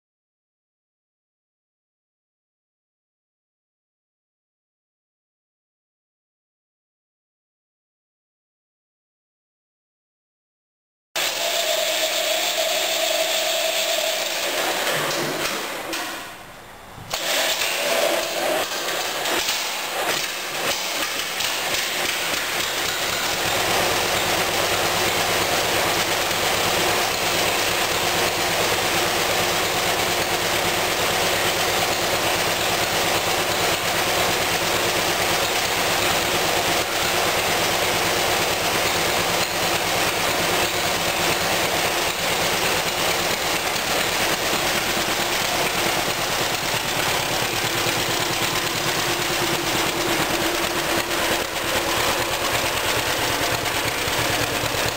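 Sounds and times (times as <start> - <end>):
tractor engine running: 11.2 - 54.9.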